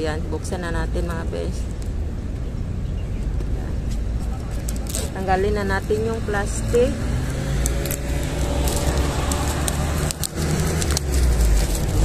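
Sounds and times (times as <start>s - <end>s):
low rumble: 0.0s - 12.0s
plastic wrap crinkling: 7.8s - 12.0s.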